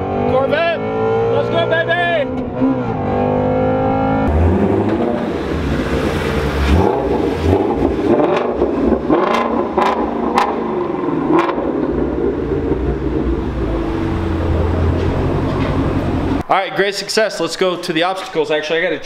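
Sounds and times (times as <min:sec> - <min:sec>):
car engine idling: 0:04.3 - 0:16.4
exhaust pops: 0:04.3 - 0:16.4.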